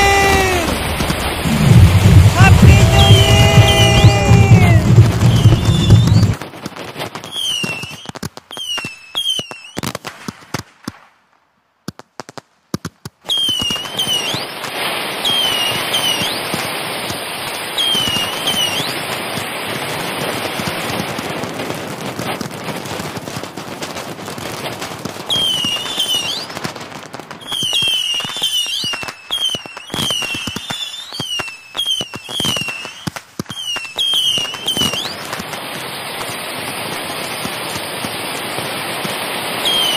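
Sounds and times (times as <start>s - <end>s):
fireworks bursting and crackling: 0.0s - 39.9s.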